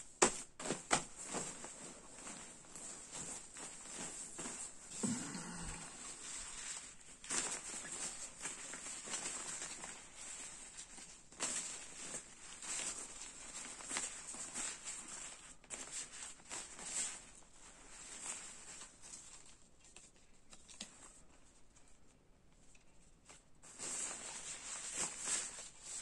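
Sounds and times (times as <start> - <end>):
synthetic fabric rustling: 0.0 - 26.0.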